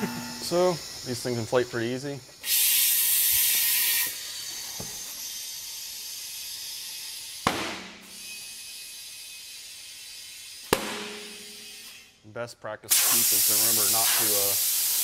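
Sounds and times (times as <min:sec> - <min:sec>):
compressed air hissing into tire: 0:00.0 - 0:07.4, 0:12.9 - 0:15.0
tire bead popping bang: 0:07.5 - 0:08.0, 0:10.7 - 0:11.6.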